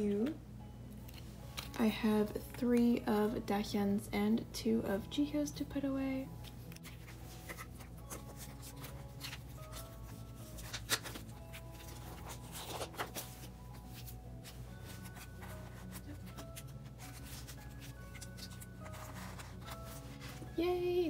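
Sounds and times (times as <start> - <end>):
soft background music: 0.0 - 21.0
cards sliding into plastic sleeves: 6.4 - 20.5
plastic rustling: 6.7 - 20.6.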